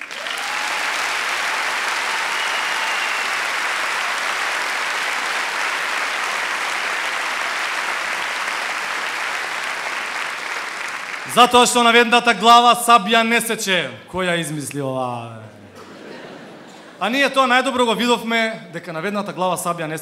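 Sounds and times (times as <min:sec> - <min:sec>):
large audience applauding: 0:00.0 - 0:12.1.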